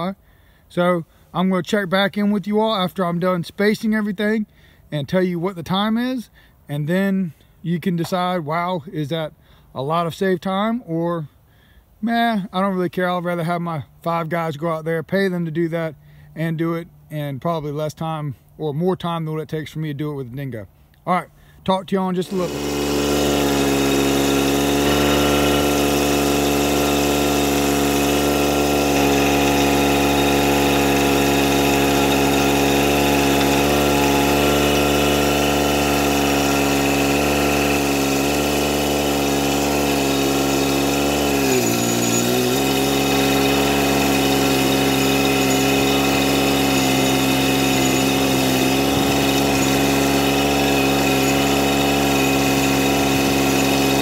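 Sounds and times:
loader engine running: 22.2 - 54.0.

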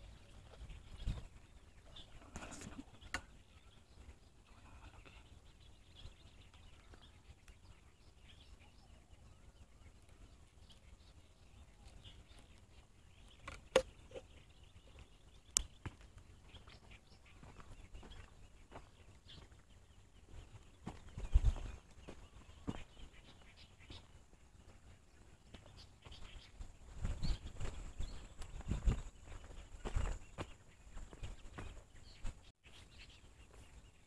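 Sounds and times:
footsteps crunching on dirt path: 10.6 - 32.5.

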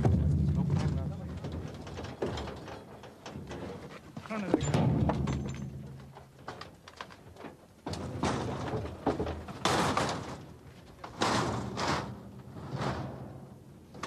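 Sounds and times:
heavy casks dragged on metal ramp: 11.4 - 13.6.

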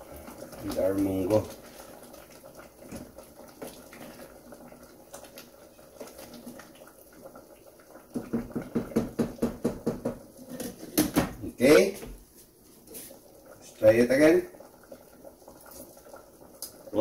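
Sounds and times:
wooden spoon stirring stew: 0.0 - 11.1
spoon knocking against pot: 8.1 - 10.2.

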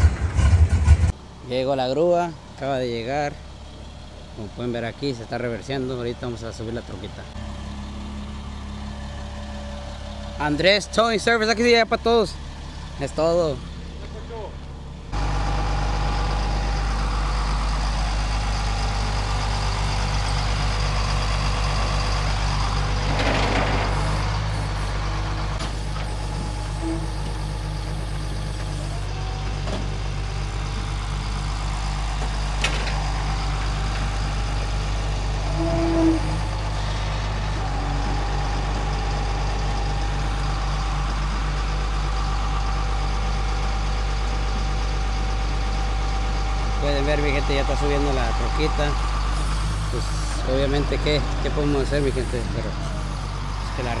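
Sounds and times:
truck engine running: 0.0 - 54.0
winch pulling: 17.4 - 45.2.

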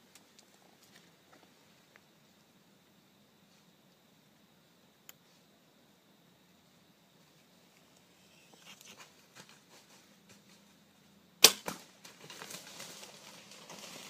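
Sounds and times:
arrow hitting: 11.4 - 12.0
bowstring crack: 11.4 - 12.6
deer running through dry leaves: 11.8 - 14.0.

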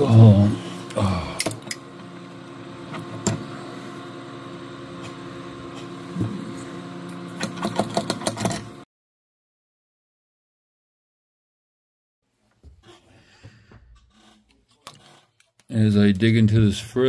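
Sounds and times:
multi-tone hum: 0.0 - 8.8.

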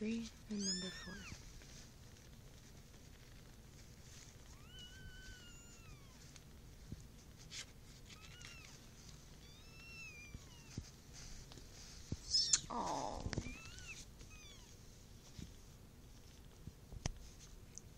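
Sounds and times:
rustling: 0.0 - 17.9
kittens mewing: 12.2 - 14.7.

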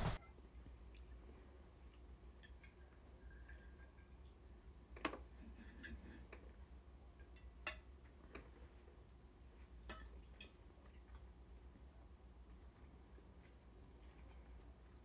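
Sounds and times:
steady low hum: 0.0 - 1.9.

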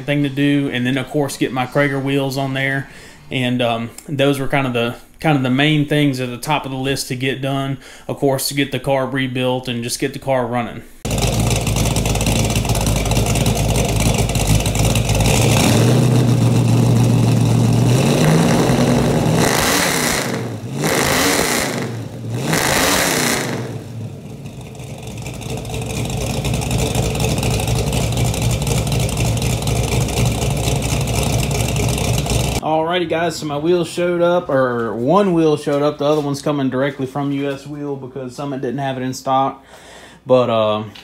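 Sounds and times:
car engine idling and revving: 11.1 - 32.6.

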